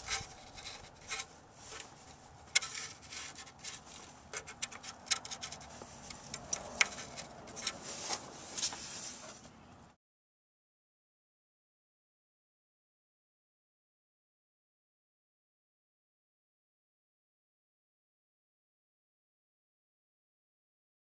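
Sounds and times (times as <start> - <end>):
rubber rubbing and scratching: 0.0 - 9.6.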